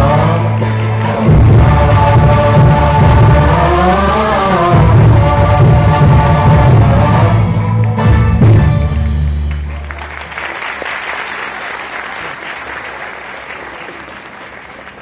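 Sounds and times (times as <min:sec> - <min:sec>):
audience applauding: 0:09.0 - 0:15.0.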